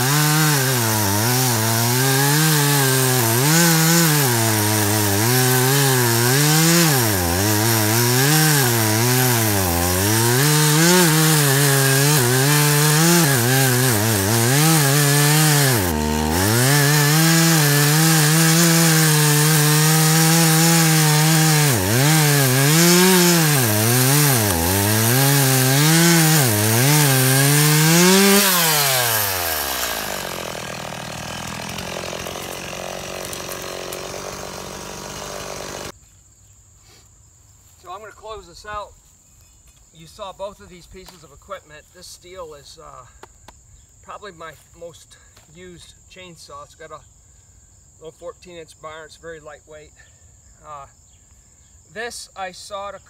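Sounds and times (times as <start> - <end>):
chainsaw cutting logs: 0.0 - 36.0.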